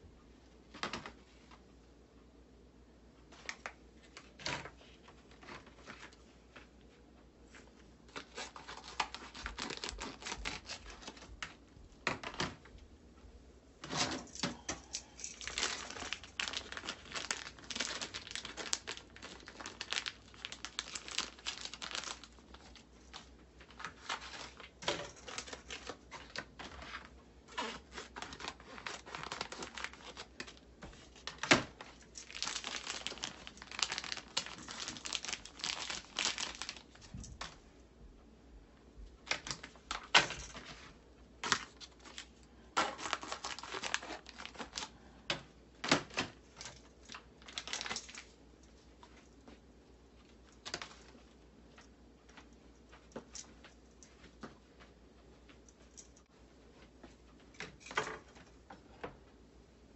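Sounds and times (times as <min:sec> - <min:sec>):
plastic pouches crinkling: 0:08.1 - 0:11.6, 0:14.2 - 0:37.6, 0:41.4 - 0:48.4.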